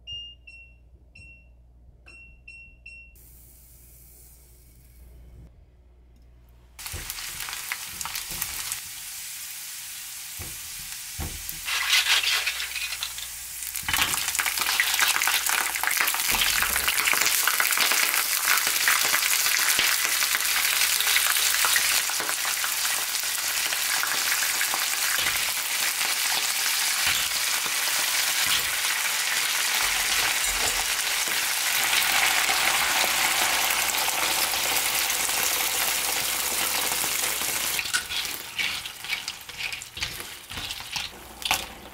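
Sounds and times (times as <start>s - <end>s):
food sizzling in a pan: 6.8s - 41.9s
stirring clicks and scrapes: 11.6s - 13.3s, 37.8s - 41.9s.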